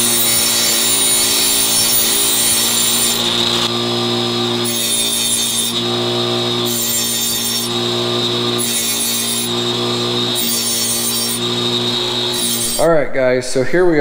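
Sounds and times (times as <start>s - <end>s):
angle grinder cutting metal: 0.0s - 12.9s.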